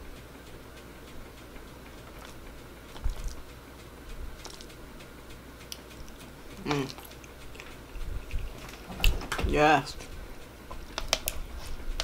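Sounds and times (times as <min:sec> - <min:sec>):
person chewing noodles: 0:01.7 - 0:03.5, 0:04.2 - 0:04.8, 0:05.6 - 0:09.2.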